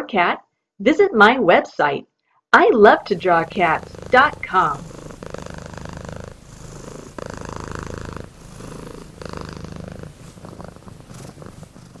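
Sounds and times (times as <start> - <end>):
cat purring: 2.9 - 12.0.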